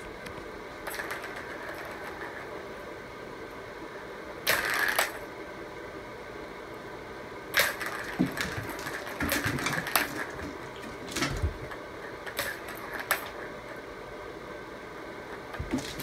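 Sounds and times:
plastic balls rattling in track toy: 0.8 - 2.5, 4.5 - 5.2, 7.6 - 13.4.

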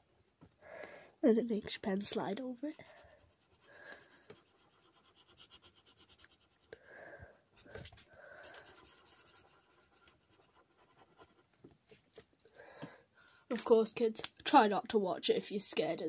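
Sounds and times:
felt-tip marker scratching on paper: 2.7 - 6.7, 7.6 - 11.6.

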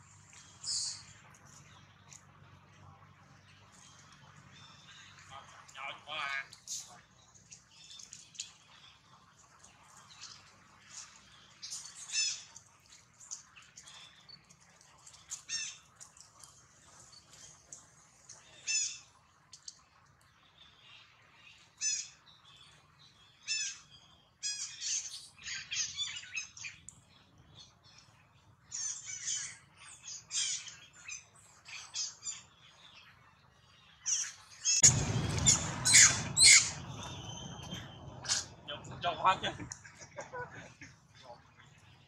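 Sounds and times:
high-pitched animal calls: 34.1 - 38.6.

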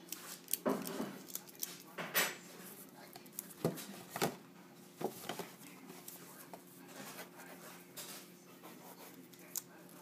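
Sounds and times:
cardboard and paper rustling: 2.6 - 10.0.

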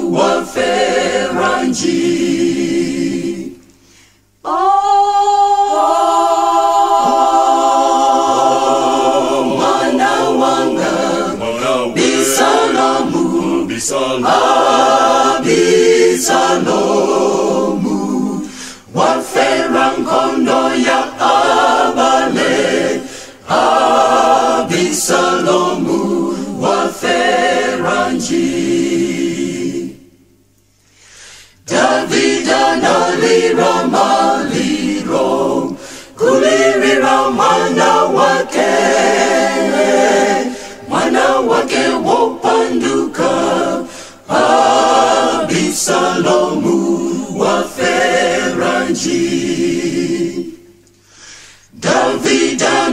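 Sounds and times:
choir singing a cappella: 0.0 - 52.9.

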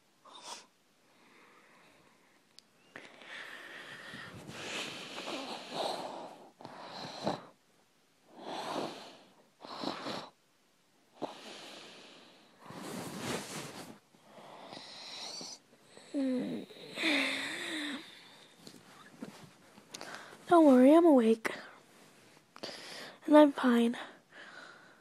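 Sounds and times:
person breathing heavily and wheezily: 3.0 - 7.6, 11.2 - 20.5, 22.6 - 23.2, 24.0 - 25.0.

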